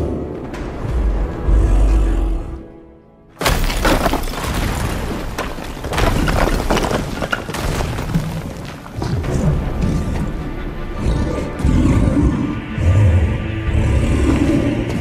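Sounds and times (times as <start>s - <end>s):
film music score: 0.0s - 6.8s, 8.4s - 15.0s
stone breaking with loud crash: 3.4s - 9.0s
rubble crumbling and falling: 3.4s - 9.3s.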